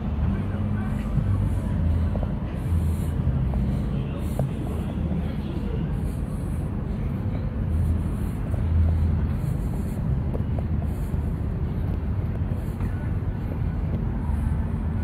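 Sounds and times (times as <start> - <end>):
funfair background rumble: 0.0 - 15.0.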